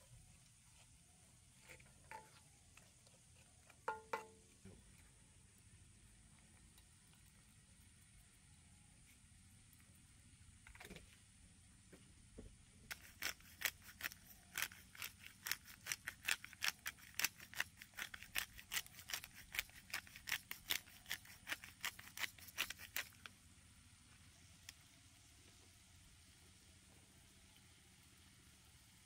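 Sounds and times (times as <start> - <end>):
spice grinder clicking: 12.9 - 23.2.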